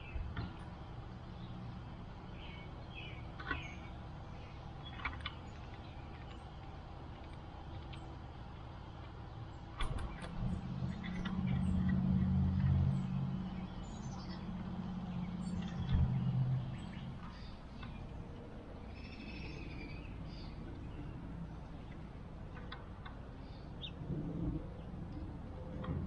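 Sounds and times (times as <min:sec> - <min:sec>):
birds chirping: 0:00.0 - 0:26.0
engine running low: 0:00.0 - 0:26.0.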